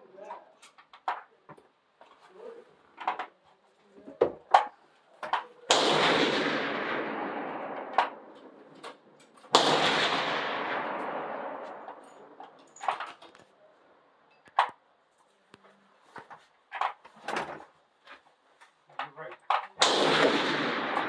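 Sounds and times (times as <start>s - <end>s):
rifle shots ringing out: 5.7s - 12.7s, 19.8s - 21.0s
short sharp cracks: 5.7s - 13.5s, 19.6s - 21.0s.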